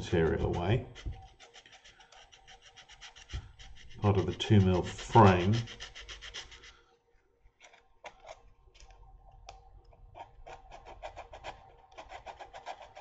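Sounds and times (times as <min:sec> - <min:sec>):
sanding strokes: 0:00.0 - 0:06.8, 0:10.5 - 0:13.0.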